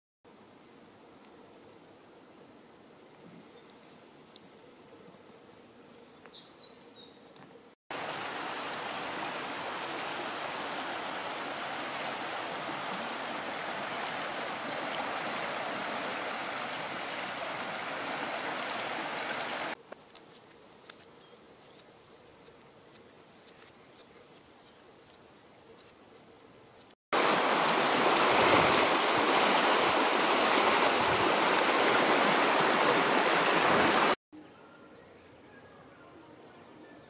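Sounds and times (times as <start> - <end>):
small high chirps and ticks: 6.0 - 7.5, 19.8 - 27.0
flood water rushing: 7.9 - 19.8, 27.2 - 34.2.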